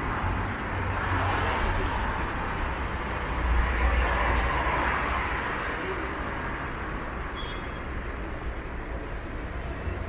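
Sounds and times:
passing vehicles hissing: 0:00.0 - 0:10.0.

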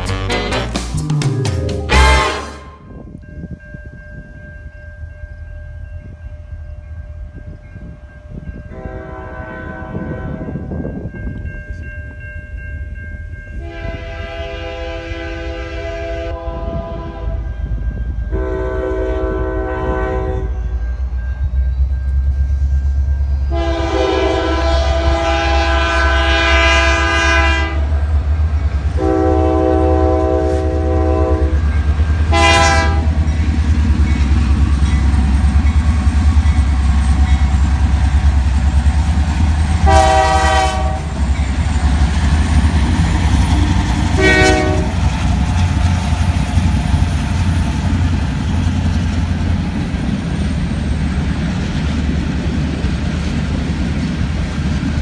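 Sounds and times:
locomotive horn blasts: 0:00.0 - 0:00.9, 0:01.8 - 0:03.0, 0:08.7 - 0:10.6, 0:13.6 - 0:17.5, 0:18.3 - 0:20.8, 0:23.5 - 0:27.9, 0:29.0 - 0:31.6, 0:32.3 - 0:33.2, 0:39.8 - 0:41.2, 0:43.6 - 0:45.0
train rumbling past: 0:00.0 - 0:55.0.

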